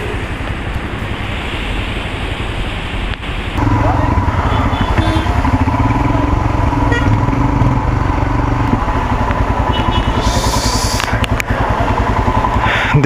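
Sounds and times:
motorcycle engine at low speed: 3.6s - 13.0s.

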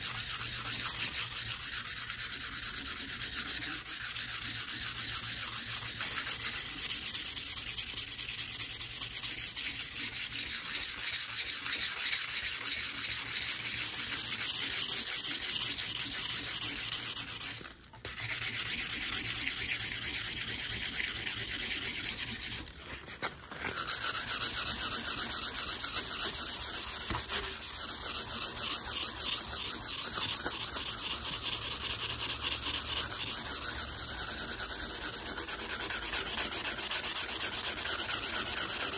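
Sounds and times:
sandpaper scratching steel blade: 0.0s - 38.9s.

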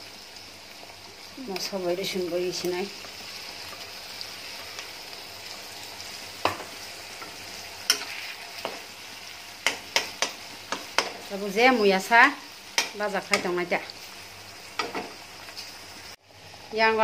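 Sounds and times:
onions sizzling in hot oil: 0.0s - 17.0s
metal spatula scraping wok: 7.2s - 8.8s.

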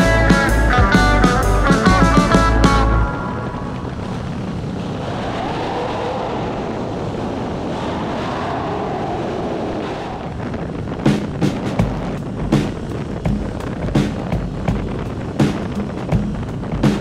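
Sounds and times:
music: 0.0s - 3.7s, 11.1s - 17.0s
motorcycle road noise: 0.0s - 17.0s
wind rushing on microphone: 0.0s - 17.0s.

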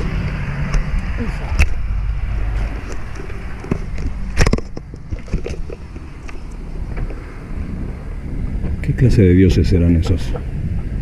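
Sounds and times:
traffic rumble: 0.0s - 11.0s
wind on microphone: 0.0s - 11.0s
bicycle rattling: 2.4s - 7.3s.

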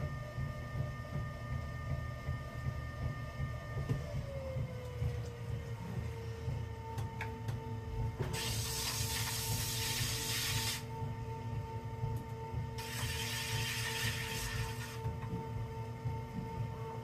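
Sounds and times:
potter's wheel motor hum: 0.0s - 17.0s
hands rubbing spinning clay: 8.4s - 10.8s, 12.8s - 15.0s.

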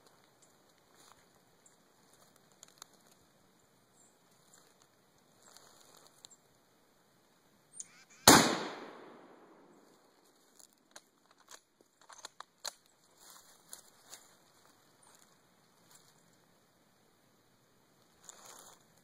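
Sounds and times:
faint clicks and rustles: 0.0s - 6.7s, 9.8s - 16.8s, 17.9s - 19.0s
rifle shot with echo: 8.1s - 9.7s.

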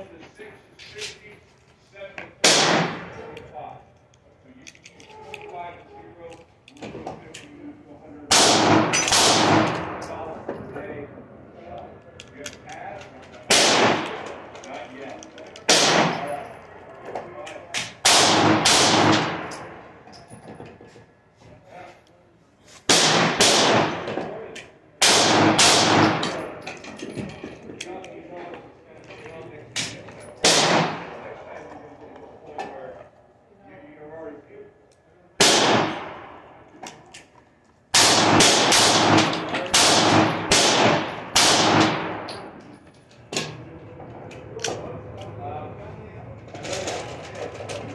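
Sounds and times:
gunshots ringing indoors: 2.4s - 3.4s, 8.3s - 10.3s, 13.4s - 14.8s, 15.6s - 16.4s, 17.7s - 19.9s, 22.9s - 24.4s, 25.0s - 26.6s, 29.8s - 31.4s, 35.4s - 36.6s, 37.9s - 42.6s.

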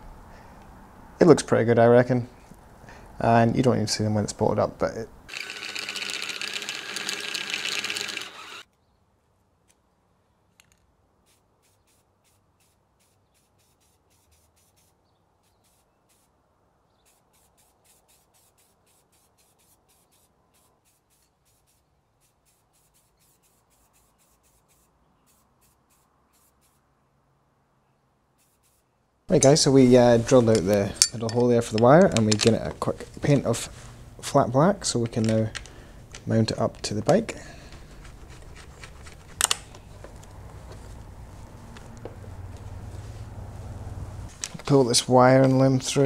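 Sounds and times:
cordless drill boring through metal: 5.3s - 8.7s.

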